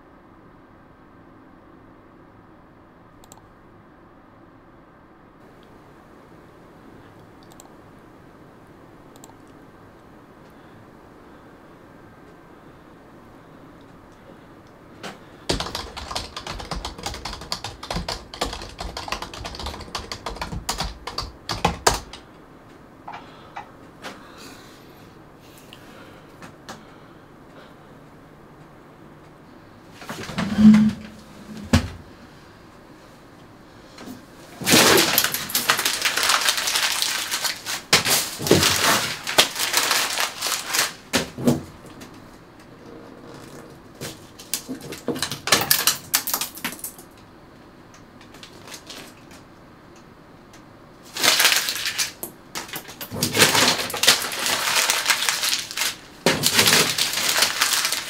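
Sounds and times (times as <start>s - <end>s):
fast typing on computer keyboard: 15.4s - 22.3s, 34.7s - 40.9s, 44.4s - 47.1s, 51.2s - 58.0s
paper tearing and rustling: 34.6s - 41.2s, 51.1s - 58.0s.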